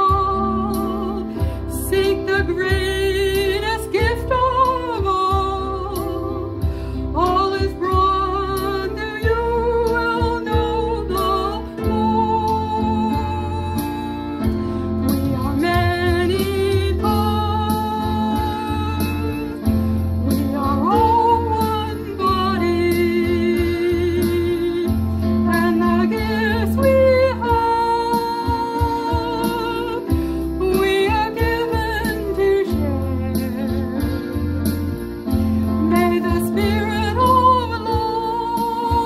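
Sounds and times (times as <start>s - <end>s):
instrumental accompaniment: 0.0s - 39.0s
person singing a hymn: 20.3s - 34.4s, 35.8s - 39.0s.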